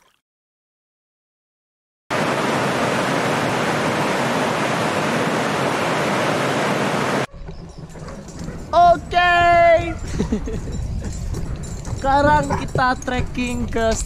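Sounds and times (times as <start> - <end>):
waterfall rushing: 2.1 - 7.3.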